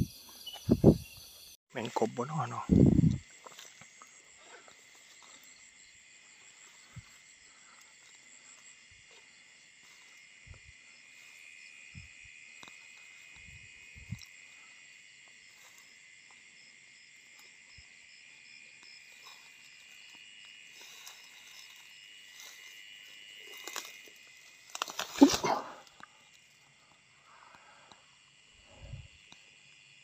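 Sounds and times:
pulsing chirp: 0.0s - 1.6s
night insects chirping: 0.0s - 30.0s.

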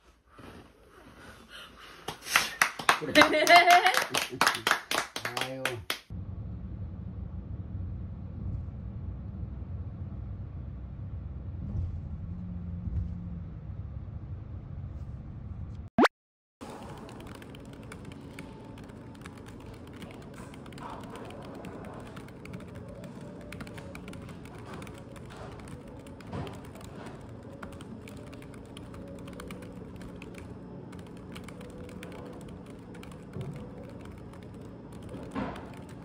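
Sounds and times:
typing on computer keyboard: 16.7s - 36.0s.

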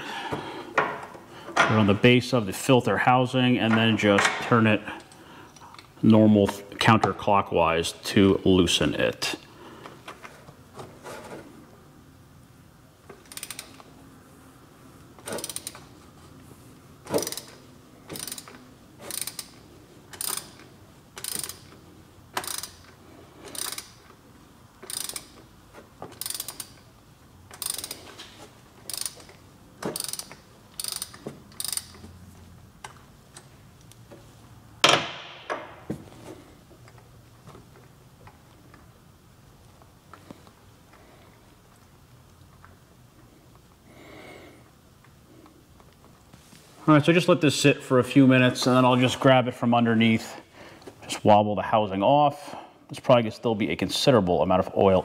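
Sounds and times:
ratchet wrench clicking: 13.1s - 13.9s, 15.2s - 15.9s, 17.1s - 24.2s, 24.8s - 25.4s, 26.1s - 26.9s, 27.5s - 32.1s.

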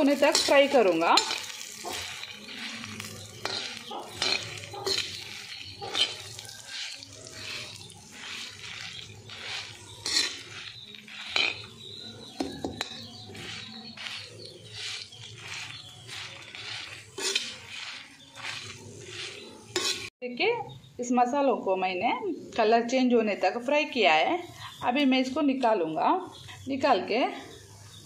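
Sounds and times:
spoon scraping spices on hot pan: 0.0s - 20.1s.

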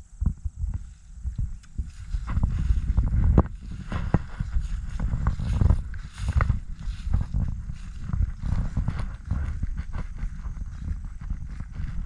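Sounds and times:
wind rumbling on microphone: 0.0s - 12.0s
footsteps through dry leaves: 1.8s - 12.0s.

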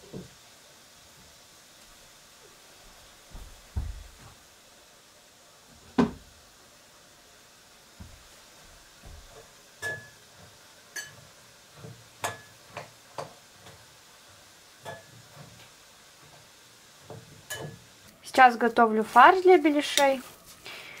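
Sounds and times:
utensil clinking against pot: 9.8s - 10.2s, 10.9s - 11.3s, 12.2s - 12.9s, 14.8s - 15.2s, 17.4s - 17.8s.

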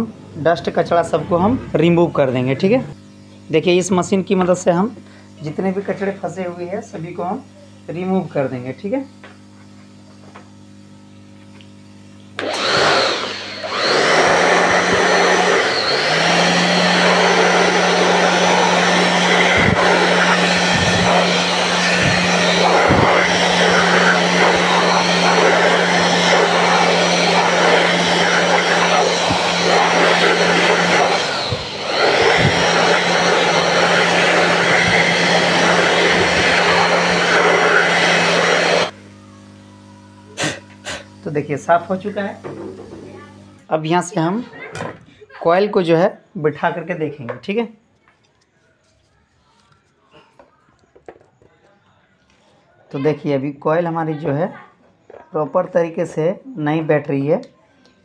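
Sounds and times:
electric air blower whine: 0.0s - 44.5s.

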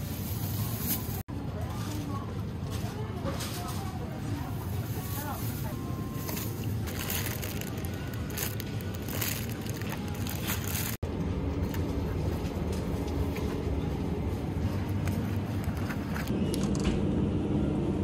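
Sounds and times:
supermarket background noise: 0.0s - 18.0s
plastic bags crinkling: 4.7s - 11.0s.

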